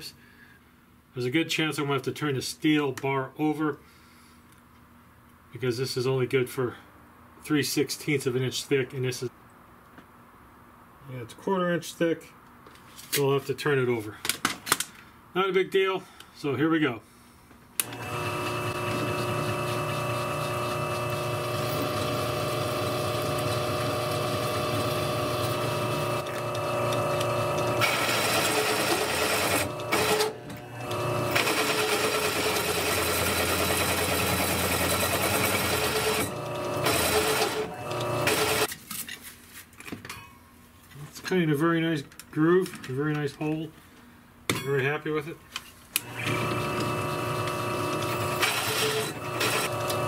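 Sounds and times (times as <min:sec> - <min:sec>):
drill press motor hum: 0:17.8 - 0:38.7, 0:46.0 - 0:50.0
hole cutter grinding steel: 0:17.8 - 0:38.7, 0:46.0 - 0:50.0.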